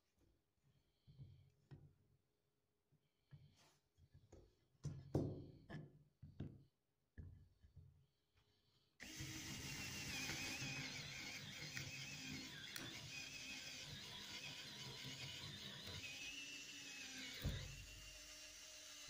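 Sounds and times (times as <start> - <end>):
power drill boring into wood: 9.0 - 19.0.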